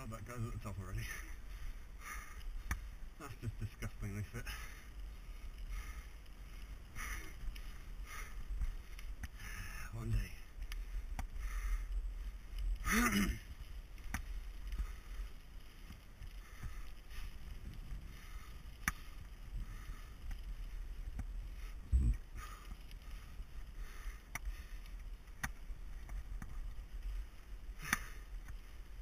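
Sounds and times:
bike clicks over bumps: 0:00.0 - 0:29.0
bike tyres rumbling on gravel: 0:00.0 - 0:29.0.

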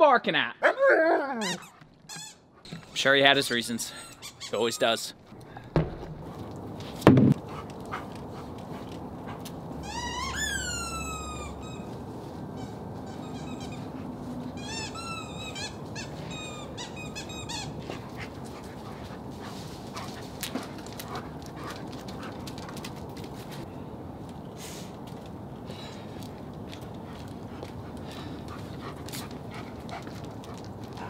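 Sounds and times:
high-pitched squeaks: 0:01.4 - 0:05.2, 0:09.8 - 0:17.8.

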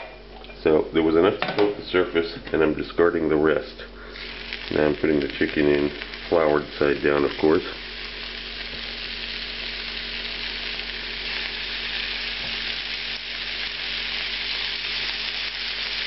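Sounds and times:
chicken sizzling in hot oil: 0:04.2 - 0:16.0.

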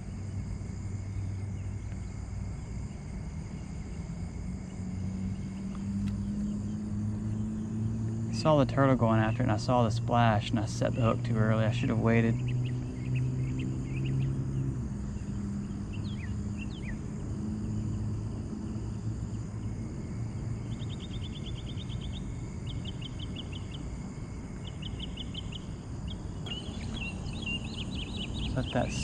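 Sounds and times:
steady low rumble: 0:00.0 - 0:29.0
bird chirping: 0:10.8 - 0:14.6, 0:15.2 - 0:17.1, 0:20.6 - 0:23.8, 0:24.6 - 0:29.0
bird trills: 0:20.7 - 0:23.9, 0:24.6 - 0:29.0.

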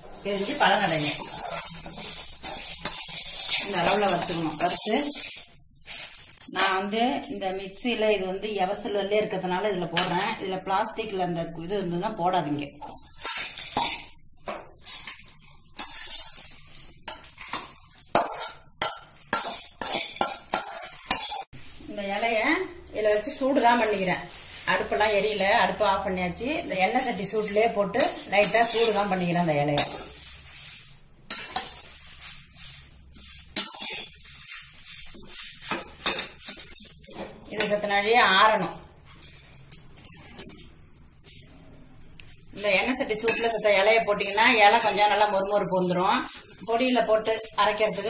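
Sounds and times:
metal spoon scraping a pan: 0:00.0 - 0:06.9, 0:12.7 - 0:21.8, 0:23.0 - 0:37.9, 0:38.5 - 0:41.5, 0:42.2 - 0:48.0
dry lentils rattling against steel: 0:00.4 - 0:06.5.

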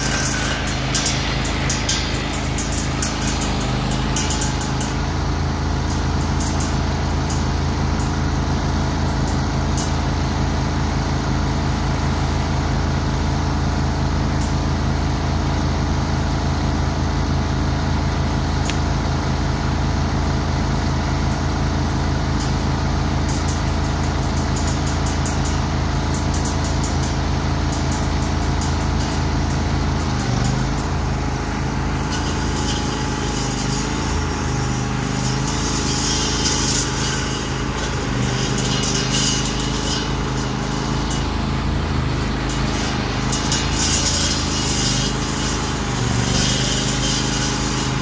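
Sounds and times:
riding mower engine running: 0:00.0 - 0:48.0.

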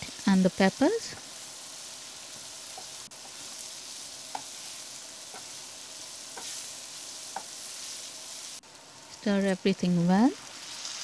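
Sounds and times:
food sizzling in frying pan: 0:00.0 - 0:11.0
spatula scraping pan: 0:06.3 - 0:08.2.

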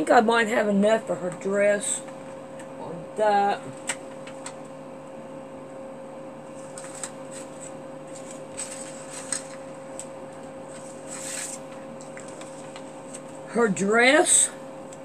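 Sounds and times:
faint steady hum: 0:00.0 - 0:15.0
paper and fabric rustling: 0:06.6 - 0:13.4.

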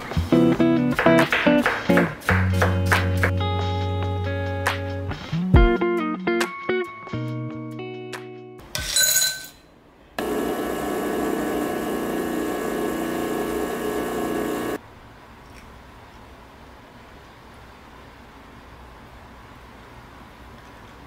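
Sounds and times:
espresso machine pump humming: 0:10.2 - 0:14.8.

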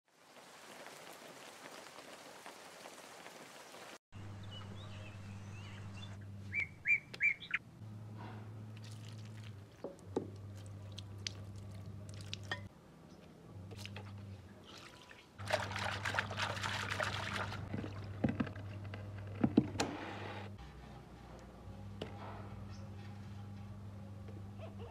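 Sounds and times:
rain falling: 0:00.1 - 0:04.0
low hum: 0:04.2 - 0:14.5.

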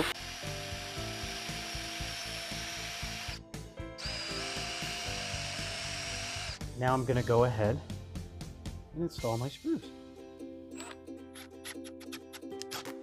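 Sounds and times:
cordless drill boring into wood: 0:00.0 - 0:03.4, 0:04.0 - 0:06.7.

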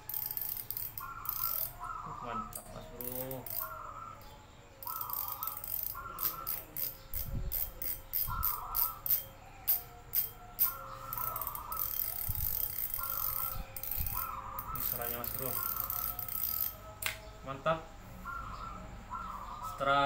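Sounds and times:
fishing reel drag clicking: 0:00.1 - 0:01.8, 0:02.5 - 0:03.8, 0:04.8 - 0:16.8.

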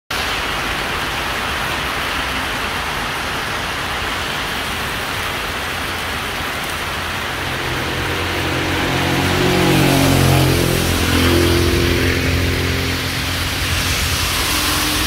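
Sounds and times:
heavy rain on road: 0:00.1 - 0:15.0
vehicle engine hum: 0:06.0 - 0:15.0.

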